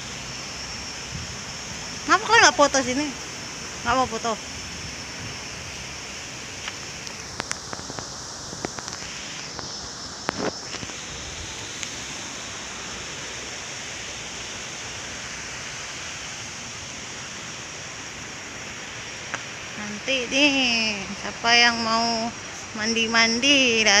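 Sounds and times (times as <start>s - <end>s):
thin high steady tone: 0.0s - 7.3s, 9.0s - 24.0s
river rushing: 0.0s - 24.0s.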